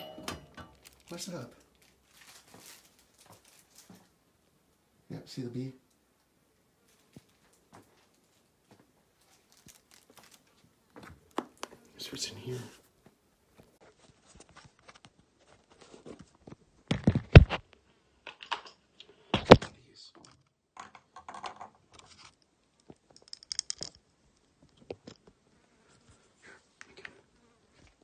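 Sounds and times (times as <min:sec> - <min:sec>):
rummaging through small objects: 0:00.0 - 0:04.0, 0:09.2 - 0:10.6.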